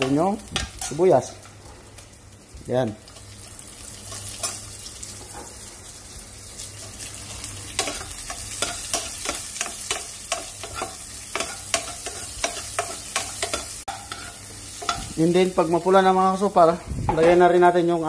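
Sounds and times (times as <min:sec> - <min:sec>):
onion and garlic sizzling in fat: 0:00.0 - 0:18.0.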